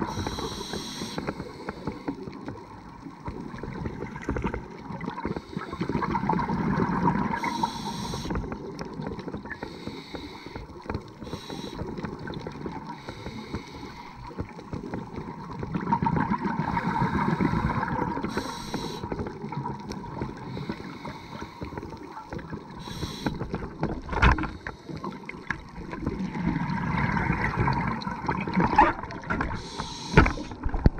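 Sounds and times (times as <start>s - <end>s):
diver breathing through regulator: 0.0s - 2.4s, 5.2s - 6.5s, 7.2s - 8.5s, 9.6s - 14.6s, 16.6s - 19.3s, 20.2s - 22.0s, 22.7s - 23.6s, 29.4s - 30.6s
bubbling exhalations: 3.6s - 7.5s, 15.6s - 21.0s, 22.5s - 30.9s.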